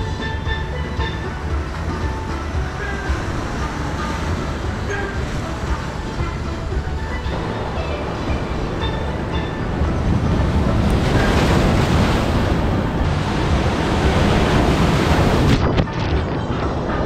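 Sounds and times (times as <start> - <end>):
wave splashing microphone: 0.0 - 17.0
wind buffeting microphone: 0.0 - 17.0
surf breaking on boulders: 1.5 - 16.3.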